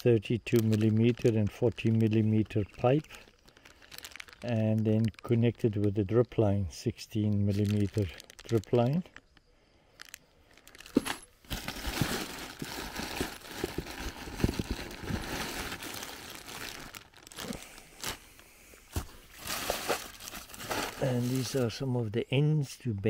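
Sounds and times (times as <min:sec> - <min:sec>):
plastic bags crinkling: 0:00.0 - 0:05.8, 0:07.2 - 0:21.8.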